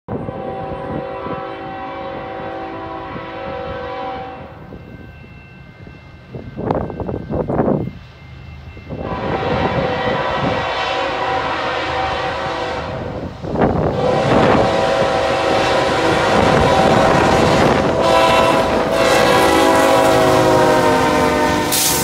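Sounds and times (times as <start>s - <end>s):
locomotive air horn blasts: 0.1s - 4.7s, 9.0s - 22.0s
locomotive engines rumbling: 0.1s - 22.0s.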